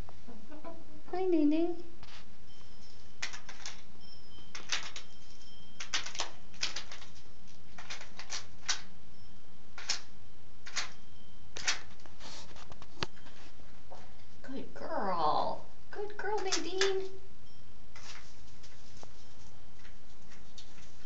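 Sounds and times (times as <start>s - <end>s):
hen pecking in wood shavings: 2.0s - 8.9s, 9.8s - 14.3s, 17.9s - 21.0s.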